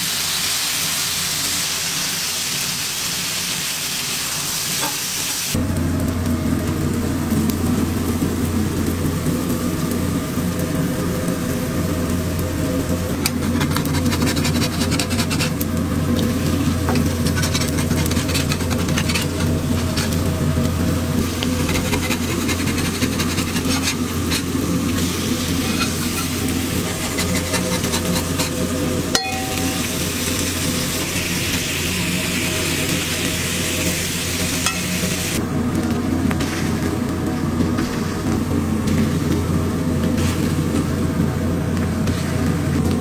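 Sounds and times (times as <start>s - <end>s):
patties sizzling on griddle: 0.0s - 43.0s
steady low hum: 5.5s - 43.0s
metal spatula scraping: 13.2s - 15.6s, 16.6s - 20.2s, 21.4s - 30.2s.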